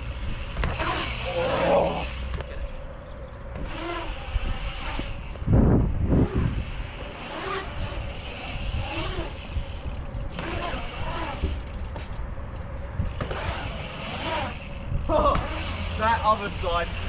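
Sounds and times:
bike tyres rolling on concrete: 0.0 - 2.8, 3.4 - 17.0
wind rumble on microphone: 0.0 - 17.0.

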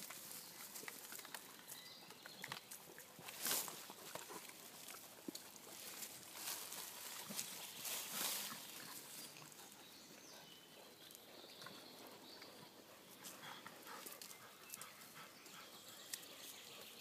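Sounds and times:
dogs rustling over leaves: 3.2 - 9.5.

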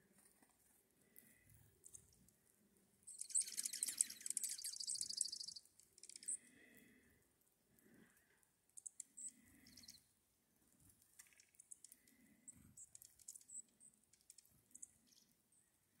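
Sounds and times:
birds chipping and twittering: 3.1 - 7.0, 7.8 - 10.1, 11.2 - 15.8.

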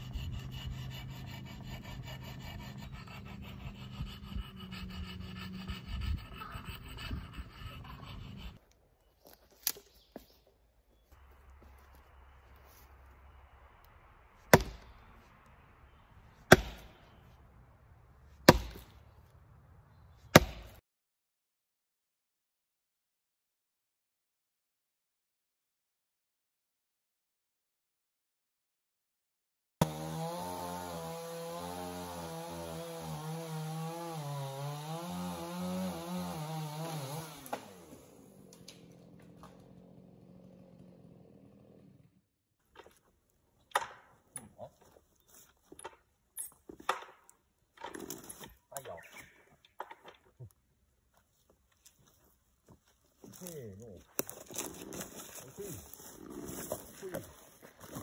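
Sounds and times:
chainsaw cutting log: 0.0 - 8.6, 14.5 - 15.2, 16.4 - 17.2, 18.4 - 19.0, 20.3 - 20.8, 29.8 - 43.1, 46.8 - 49.0, 54.1 - 58.0
axe chopping wood: 14.5 - 15.0, 16.5 - 17.0, 18.4 - 19.0, 20.3 - 20.8, 35.2 - 38.0, 43.7 - 44.5.

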